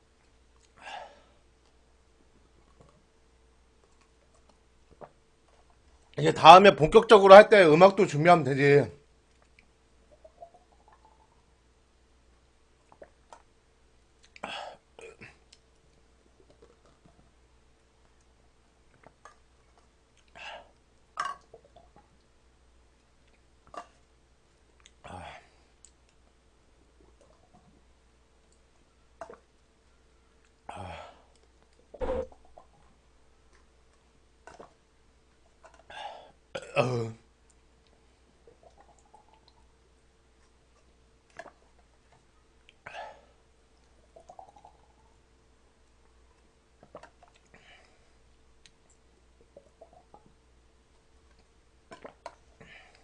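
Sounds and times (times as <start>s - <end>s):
drinking and mouth noises: 37.5s - 39.7s, 43.8s - 45.2s, 46.8s - 48.0s, 48.6s - 50.4s, 51.3s - 53.0s.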